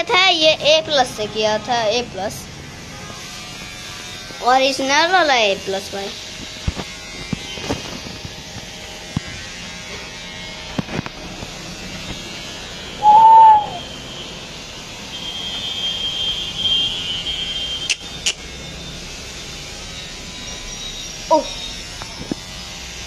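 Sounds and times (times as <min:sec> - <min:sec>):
electric hair clipper whine: 0:01.1 - 0:13.1, 0:13.7 - 0:23.0
loud hoot: 0:13.0 - 0:13.9.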